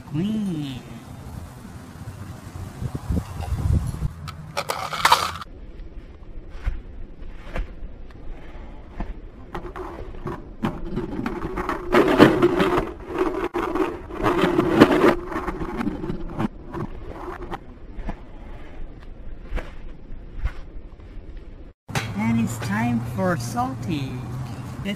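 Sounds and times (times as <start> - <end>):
toy car rolling and scraping: 3.3 - 5.5, 9.8 - 16.5.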